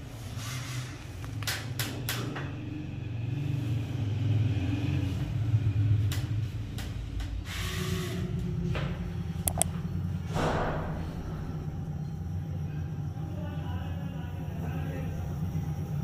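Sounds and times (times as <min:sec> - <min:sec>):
steady low hum: 0:08.5 - 0:16.0
circuit breakers clicking: 0:09.5 - 0:09.7.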